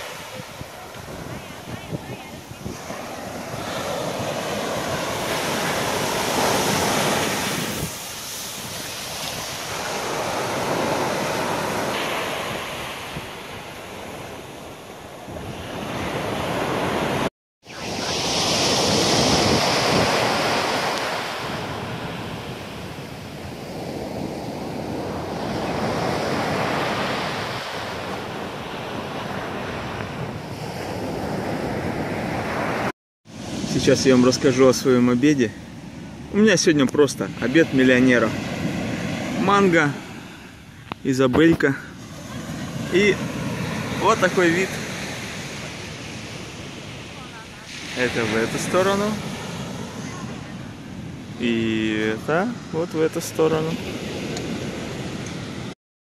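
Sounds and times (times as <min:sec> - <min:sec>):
surf breaking on beach: 0:00.0 - 0:35.6, 0:36.4 - 0:55.7
wind buffeting microphone: 0:00.5 - 0:11.0.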